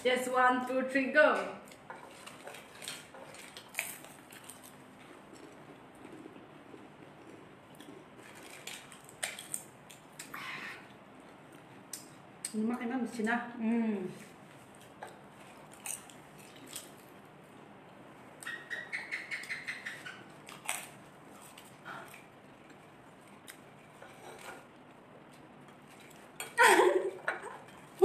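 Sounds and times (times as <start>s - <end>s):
potato chips crunching: 1.7s - 10.3s.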